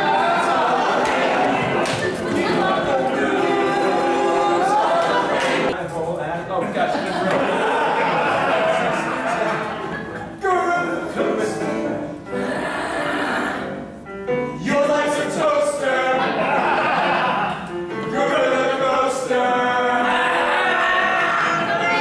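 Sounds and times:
voices howling together: 0:19.7 - 0:22.0.

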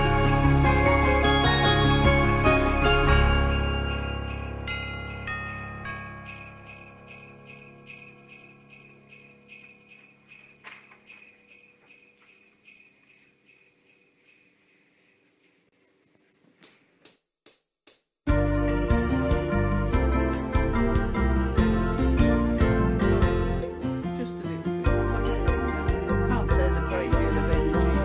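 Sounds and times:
sleigh bells shaking: 0:00.0 - 0:15.8, 0:24.2 - 0:28.0.

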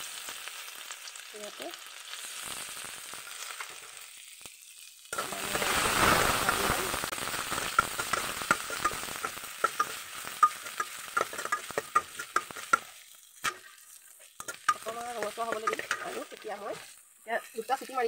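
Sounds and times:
ginger and garlic sizzling in oil: 0:00.0 - 0:18.0
metal spatula scraping pan: 0:07.6 - 0:18.0.

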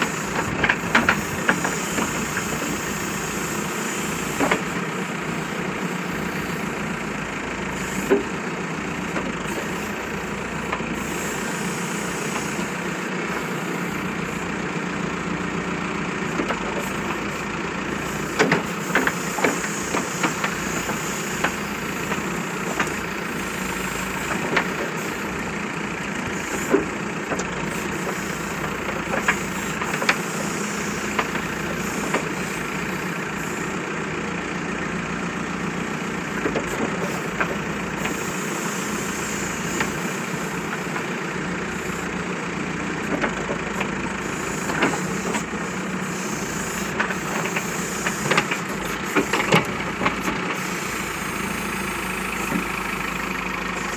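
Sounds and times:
diesel engine running: 0:00.0 - 0:53.9.

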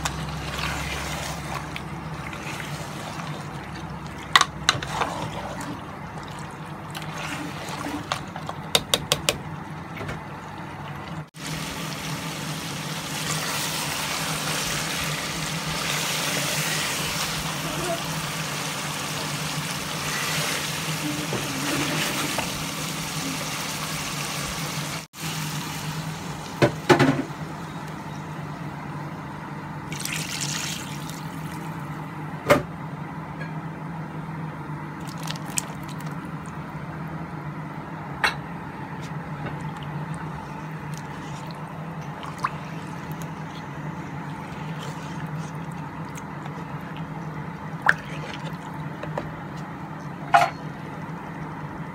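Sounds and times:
water pouring: 0:00.0 - 0:08.4, 0:29.9 - 0:31.7, 0:35.0 - 0:36.5, 0:39.6 - 0:43.6, 0:47.8 - 0:48.9
curry bubbling: 0:00.0 - 0:08.7, 0:35.0 - 0:36.9, 0:39.0 - 0:49.8.

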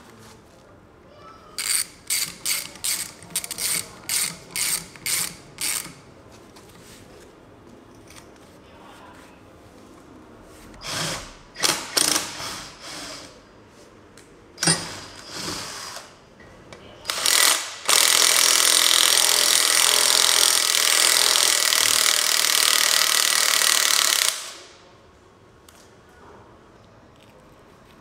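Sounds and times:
power tool running: 0:17.1 - 0:24.6.

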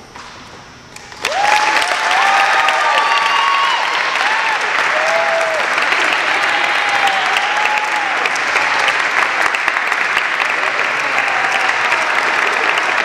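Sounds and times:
high whoops: 0:01.2 - 0:09.0
audience applauding: 0:01.2 - 0:13.0.

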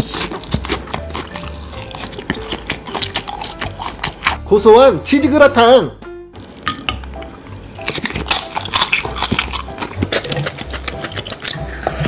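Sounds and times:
crunching and chewing snacks: 0:00.0 - 0:04.5, 0:07.8 - 0:12.0
background music: 0:00.0 - 0:12.0.

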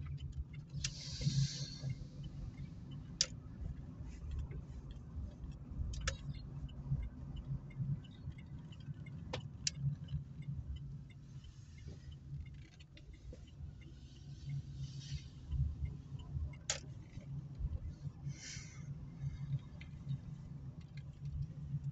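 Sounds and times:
sharp clicks and rattles: 0:00.0 - 0:14.6, 0:15.3 - 0:18.1, 0:19.2 - 0:21.9
car engine and road rumble: 0:00.0 - 0:21.9.

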